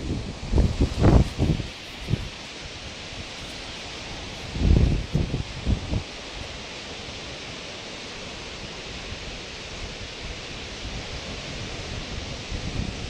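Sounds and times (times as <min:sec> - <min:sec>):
small waves breaking on sand: 0:00.0 - 0:13.0.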